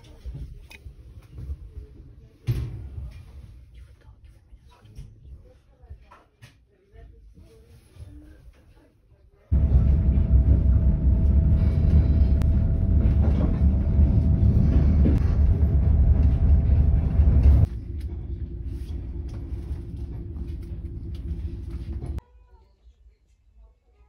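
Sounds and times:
steady hum: 9.5s - 22.2s
train carriage rumbling: 9.5s - 22.2s.

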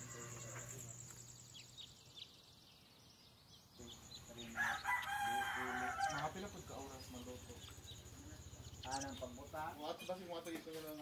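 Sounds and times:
rooster crowing: 4.5s - 6.4s.

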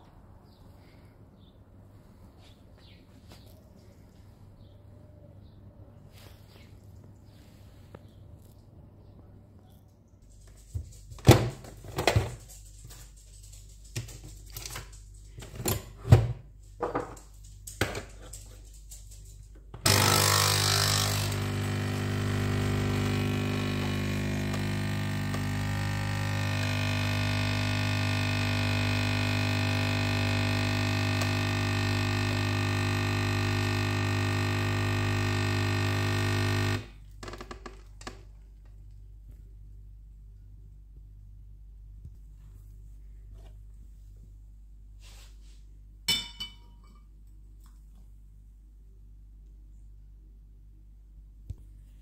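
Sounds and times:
coffee machine pump humming: 19.8s - 37.0s.

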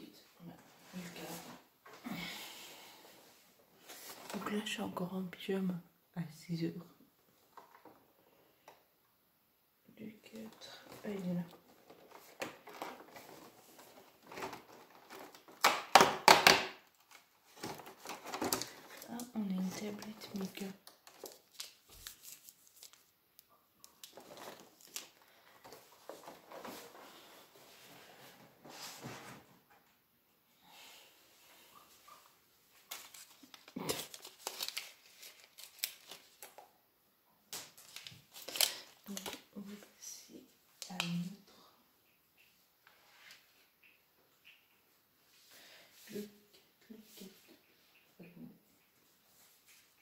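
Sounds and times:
packaging rustling and tearing: 11.6s - 15.8s, 16.4s - 23.1s, 23.8s - 26.9s, 32.8s - 36.6s, 37.5s - 39.5s.

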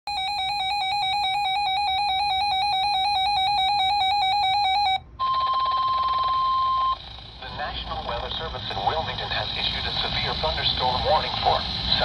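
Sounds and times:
steady warning alarm tone: 0.1s - 8.8s
radio hiss: 7.2s - 12.0s.

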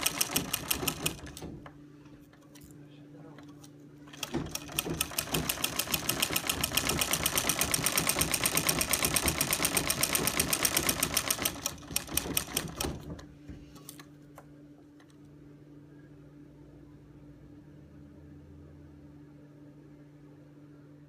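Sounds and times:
treadle sewing machine stitching: 0.0s - 1.6s, 4.1s - 13.2s.

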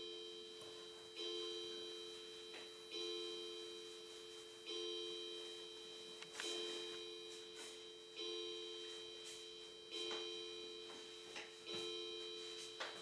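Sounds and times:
wall clock chime strokes: 0.0s - 13.0s.

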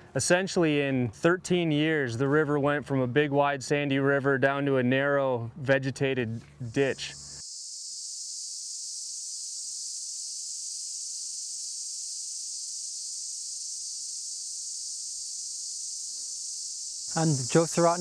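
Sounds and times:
insect chorus buzzing: 6.6s - 18.0s.

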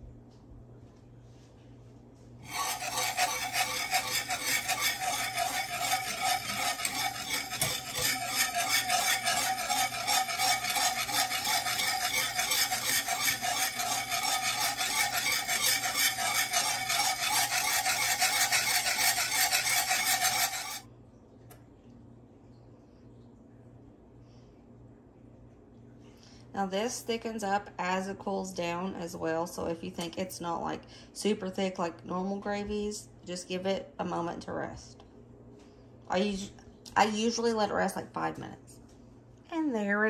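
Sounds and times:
whisk scraping a skillet: 2.4s - 20.8s.

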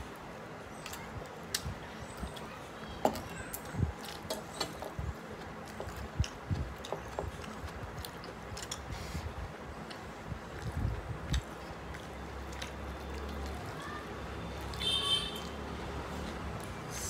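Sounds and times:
person chewing food: 4.0s - 13.6s.

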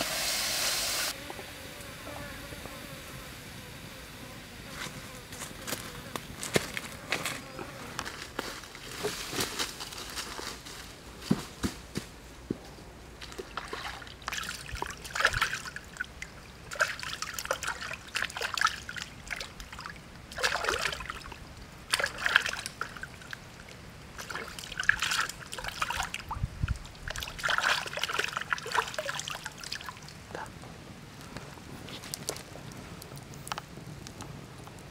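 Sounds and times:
water sloshing and trickling: 13.2s - 30.5s.

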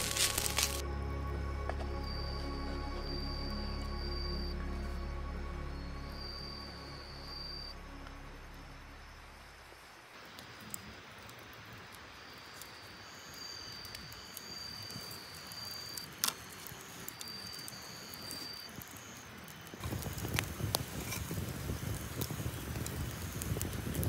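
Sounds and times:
rustling: 0.0s - 0.8s
cricket trilling: 12.1s - 19.8s.

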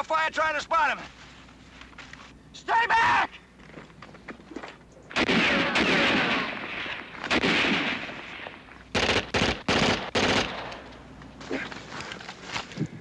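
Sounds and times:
gunshots: 5.1s - 10.8s.

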